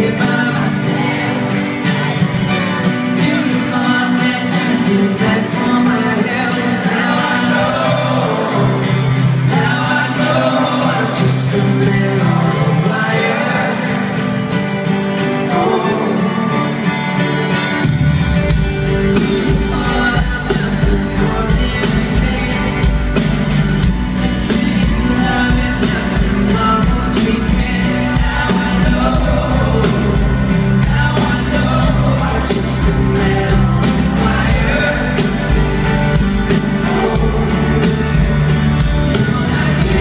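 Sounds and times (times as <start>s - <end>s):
male lead vocal singing: 0.0s - 17.7s, 18.5s - 40.0s
acoustic guitar: 0.0s - 40.0s
bass guitar: 0.0s - 40.0s
keyboard chords: 12.6s - 40.0s.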